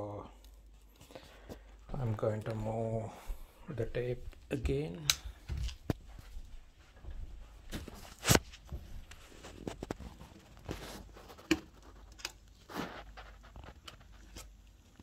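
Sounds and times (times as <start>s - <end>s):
tape rustling: 7.7s - 15.0s.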